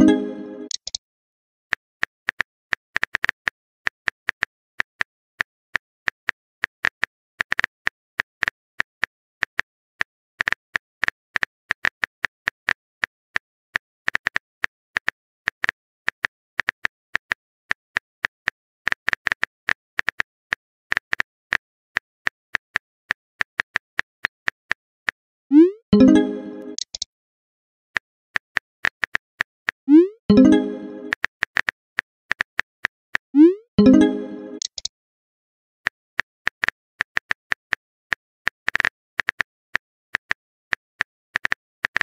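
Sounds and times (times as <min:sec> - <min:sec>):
keyboard typing clicks: 0:00.0 - 0:01.0, 0:25.5 - 0:27.0, 0:30.3 - 0:31.2, 0:33.4 - 0:34.9.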